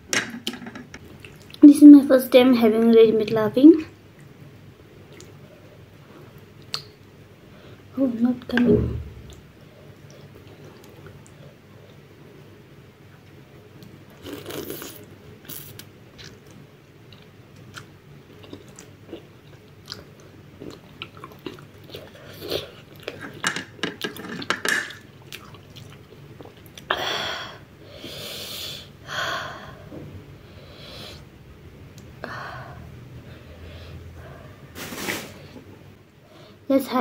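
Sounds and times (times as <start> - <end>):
loud breathy hisses: 27.9 - 29.8.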